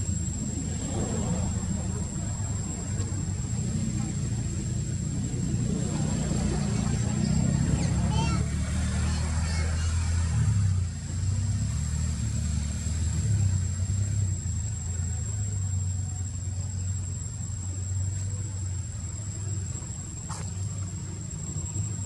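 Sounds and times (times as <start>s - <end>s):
low rumble: 0.0s - 8.5s
high insect drone: 0.0s - 22.0s.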